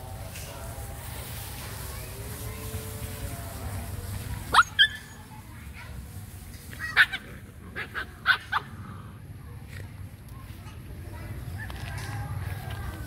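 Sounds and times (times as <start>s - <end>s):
dogs yelping and barking: 4.5s - 5.2s, 6.9s - 8.7s.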